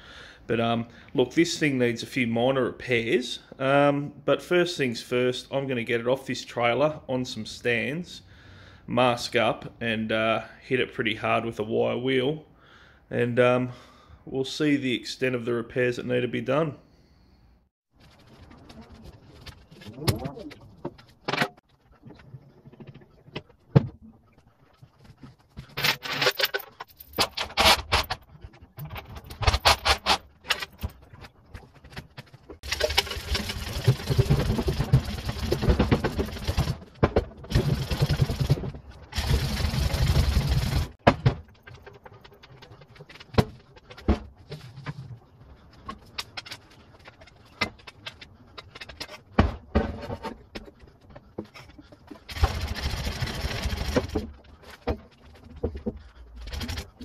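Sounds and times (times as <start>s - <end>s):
chain hoist rattling: 32.6s - 36.8s, 37.5s - 41.0s, 52.2s - 54.4s, 56.4s - 57.0s.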